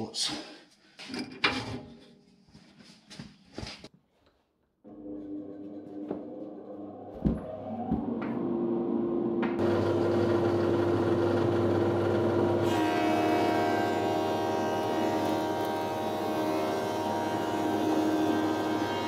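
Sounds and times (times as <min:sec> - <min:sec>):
woodworking machinery running: 0:04.9 - 0:19.0
planer cutting a board: 0:09.4 - 0:19.0.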